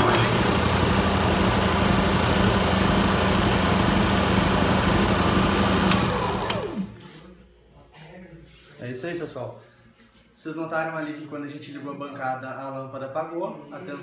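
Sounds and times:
electric motor whirring: 0.0 - 7.0.

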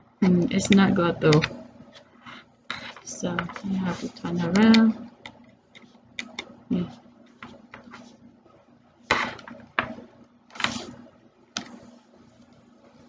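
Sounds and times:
small clicks and taps: 4.5 - 6.5
short scrapes or rustles: 10.6 - 11.0.

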